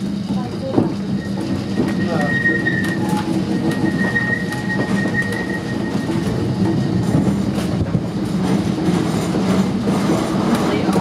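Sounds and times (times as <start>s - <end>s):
tram car rumbling on rails: 0.0s - 11.0s
thin high squeal: 1.2s - 7.2s.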